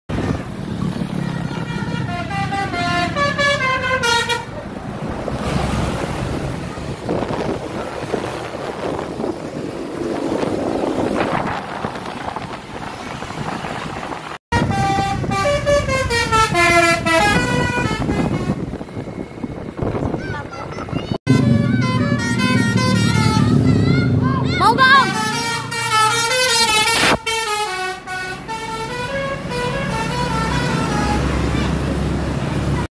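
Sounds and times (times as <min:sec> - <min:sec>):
road traffic noise: 0:00.1 - 0:32.9
bus musical horn: 0:01.1 - 0:04.6, 0:14.5 - 0:18.8, 0:21.3 - 0:32.1.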